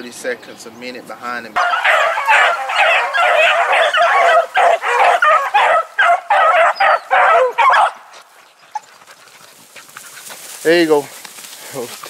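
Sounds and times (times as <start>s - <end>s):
dogs baying: 1.6s - 10.5s.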